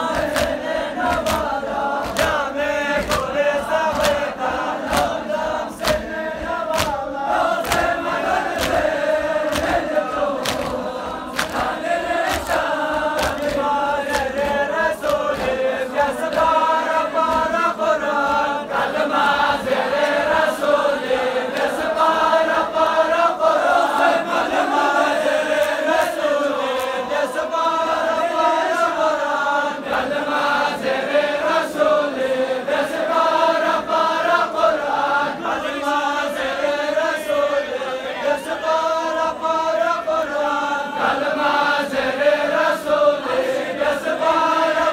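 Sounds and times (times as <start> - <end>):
hands slapping chests: 0.0 - 17.7, 25.5 - 27.0
crowd of men chanting: 0.0 - 44.9.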